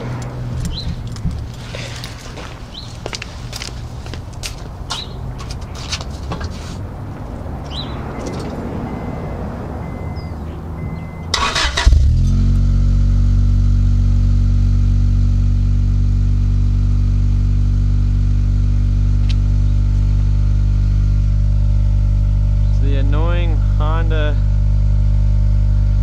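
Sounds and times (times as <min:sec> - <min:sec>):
car engine idling: 0:07.2 - 0:26.0
engine cranking: 0:11.3 - 0:12.4.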